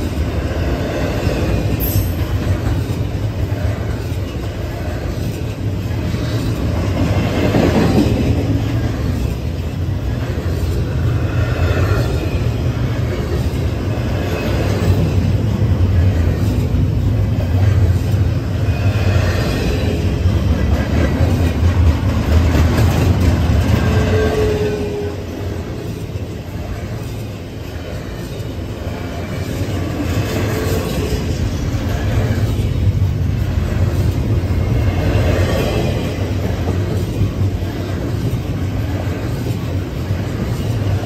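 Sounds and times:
freight train wheels rumbling on rail: 0.0 - 41.0
clickety-clack of passing cars: 19.4 - 24.1.

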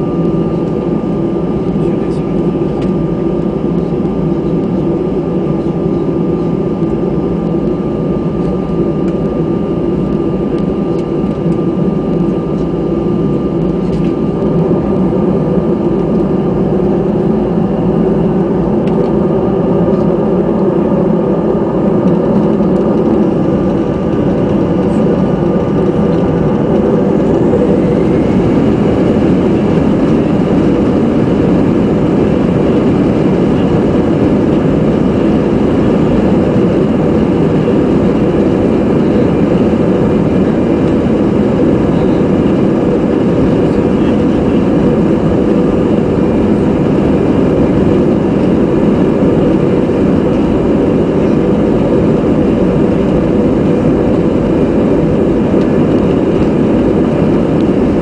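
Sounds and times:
jet engines rumbling in cabin: 0.0 - 58.0.

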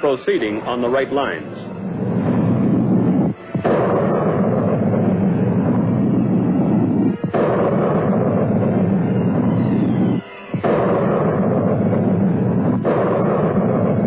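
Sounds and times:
rocket exhaust roar: 0.0 - 14.0.

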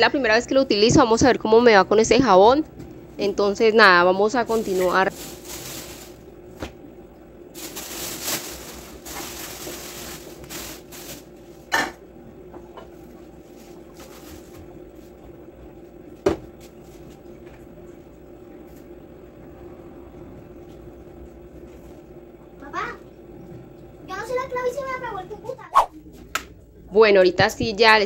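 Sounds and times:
faint steady hum: 0.0 - 28.0
cloth and plastic rustling: 4.3 - 6.8, 7.5 - 11.8, 13.0 - 15.2.

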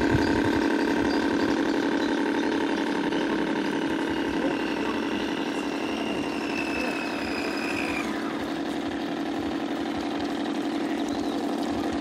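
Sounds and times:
high whine: 0.0 - 12.0
model boat motor buzzing hum: 0.0 - 12.0.

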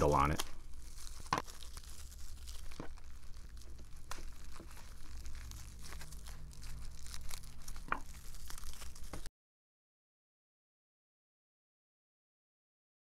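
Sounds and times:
plastic wrapping crinkling: 0.0 - 9.3.

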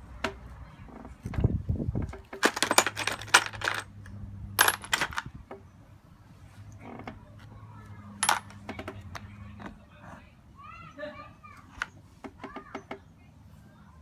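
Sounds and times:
small metal parts clinking: 2.3 - 5.3, 8.1 - 9.3.

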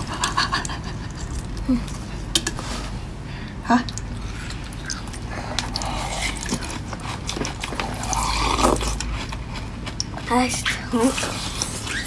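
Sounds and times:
frozen cabbage crunching: 4.2 - 12.0.

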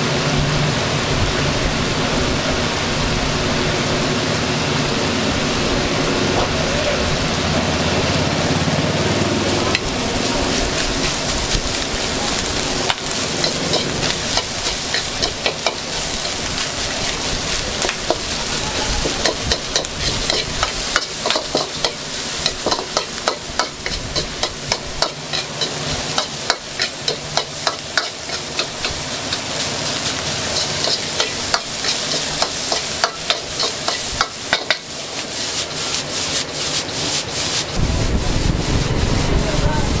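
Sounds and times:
rice sizzling in a wok: 0.0 - 40.0
metal spatula scraping a wok: 9.5 - 37.8.

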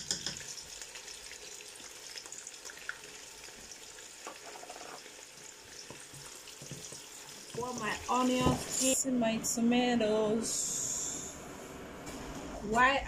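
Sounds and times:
onions sizzling in hot oil: 0.1 - 9.0
utensil scraping pot: 4.2 - 5.1.

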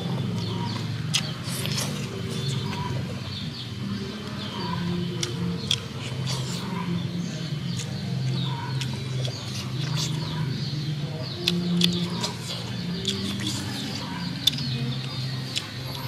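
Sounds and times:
mouth clicks and smacks chewing: 0.0 - 3.1, 5.1 - 6.7, 7.7 - 10.6, 11.4 - 16.0
birds calling: 0.0 - 16.0.

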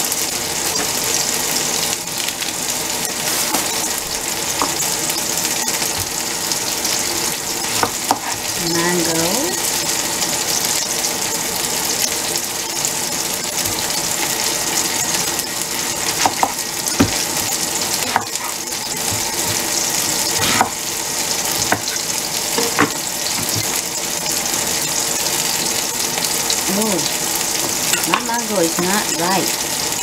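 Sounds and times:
chicken sizzling in a pan: 0.0 - 30.0
knife knocking on cutting board: 16.2 - 17.2.

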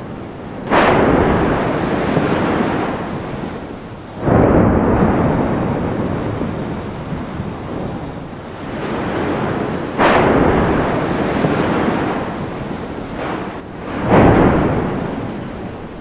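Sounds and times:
deep continuous rumble: 0.0 - 16.0
loud volcanic blast: 0.0 - 16.0.

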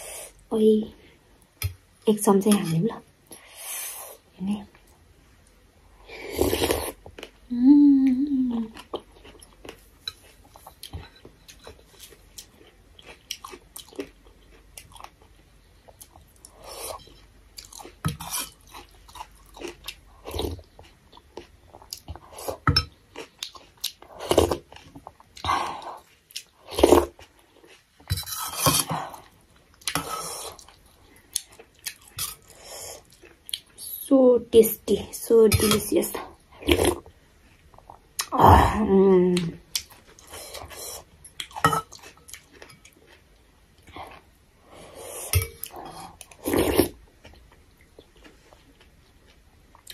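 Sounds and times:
person humming: 7.5 - 8.7
chewing and slurping soup: 8.6 - 33.8, 39.7 - 49.9.

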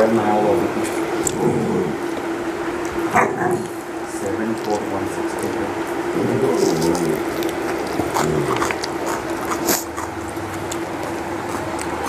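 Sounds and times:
steady hum: 0.0 - 12.0
chewing: 0.8 - 1.5, 6.2 - 12.0.

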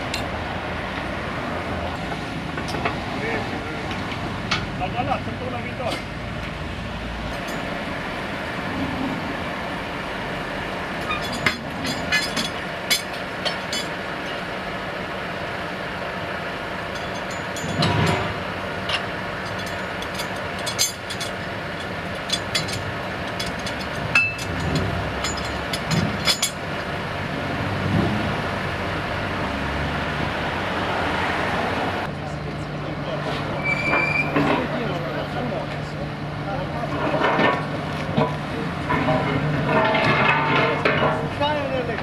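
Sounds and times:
steady mechanical hum: 0.0 - 29.5
steel chains clinking: 7.4 - 7.7, 11.0 - 14.5, 16.8 - 26.6.

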